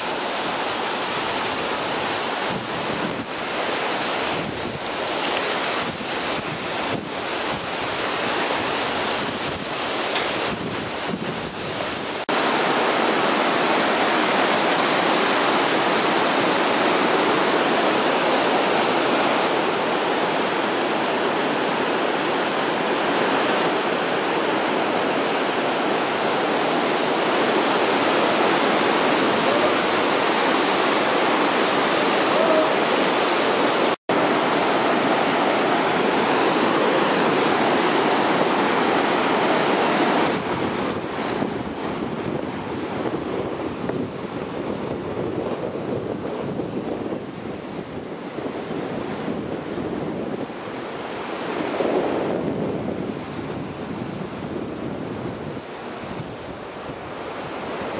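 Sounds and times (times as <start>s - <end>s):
river rushing over rocks: 0.0s - 57.9s.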